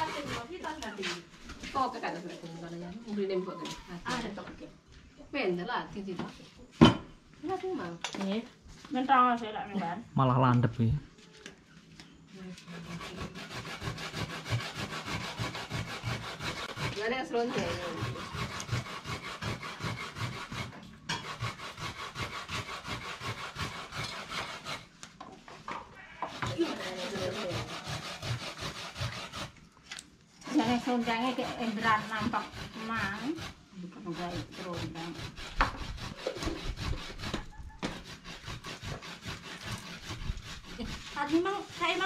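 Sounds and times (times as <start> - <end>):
rhythmic scraping strokes: 0.0 - 2.9, 12.4 - 24.9, 26.3 - 29.6, 30.4 - 42.0.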